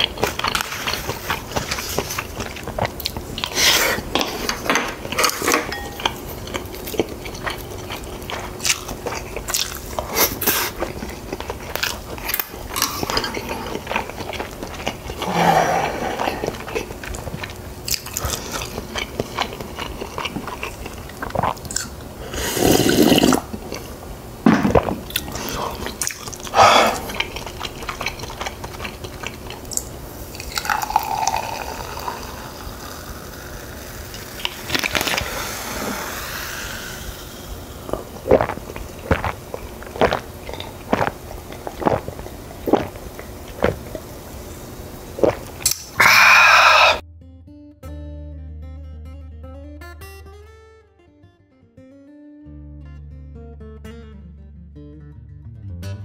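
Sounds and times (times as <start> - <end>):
biting and chewing: 0.0 - 22.0, 24.7 - 31.2, 37.8 - 44.1
drink pouring into a glass: 30.4 - 35.6.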